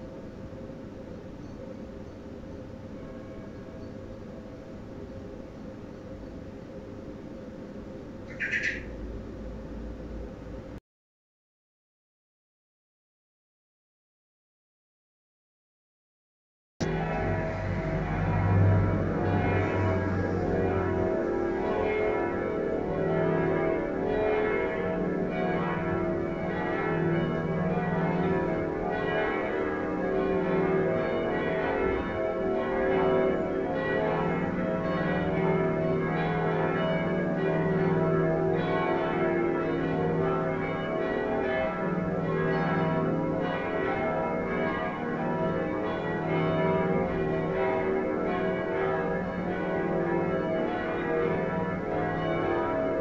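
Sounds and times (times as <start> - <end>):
church bells ringing a peal: 0.0 - 5.4, 16.8 - 53.0
deep bell tolling: 16.8 - 53.0.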